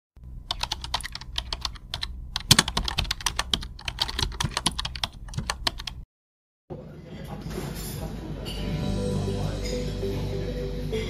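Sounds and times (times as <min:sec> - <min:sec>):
low steady hum: 0:00.2 - 0:06.0
keyboard typing: 0:00.5 - 0:06.0.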